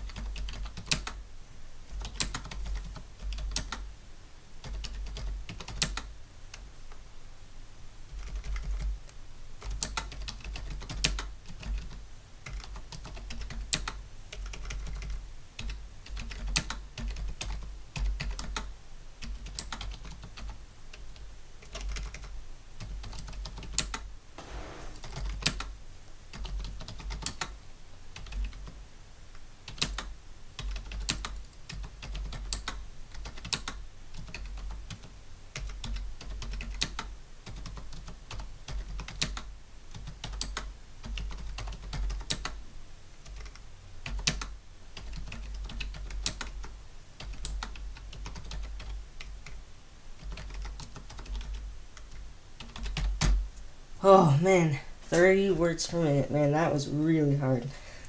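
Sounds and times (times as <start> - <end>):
keyboard typing: 0.0 - 1.2, 1.9 - 3.8, 4.6 - 6.1, 8.1 - 8.9, 9.6 - 25.7, 26.3 - 27.6, 29.7 - 42.6, 43.2 - 49.6, 50.2 - 53.4.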